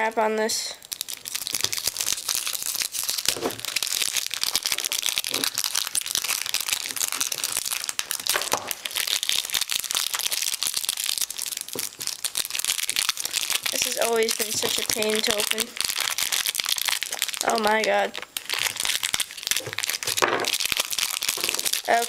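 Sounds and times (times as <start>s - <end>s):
plastic wrap crinkling: 0.7s - 22.0s.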